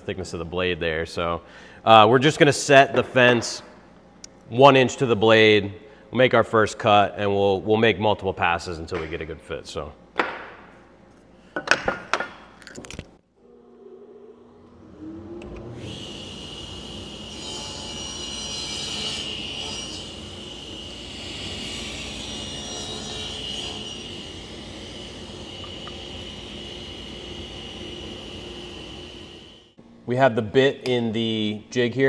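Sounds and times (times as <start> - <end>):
table saw whining: 13.4 - 29.8.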